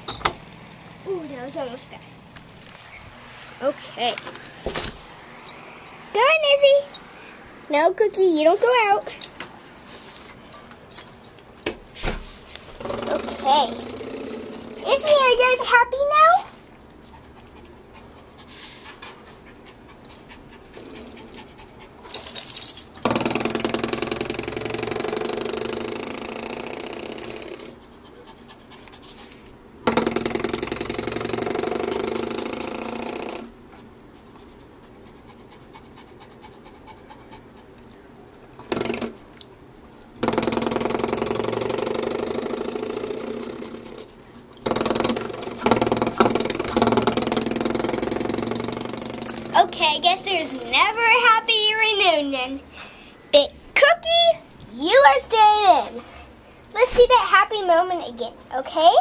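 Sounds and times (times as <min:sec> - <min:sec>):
small dogs growling and snarling: 0:12.8 - 0:15.7, 0:17.2 - 0:22.3, 0:30.3 - 0:33.6, 0:40.8 - 0:51.0.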